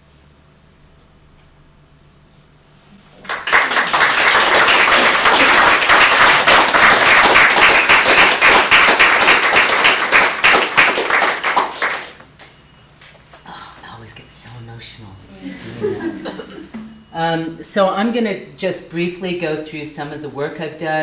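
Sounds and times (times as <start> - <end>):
audience applauding: 3.2 - 12.2.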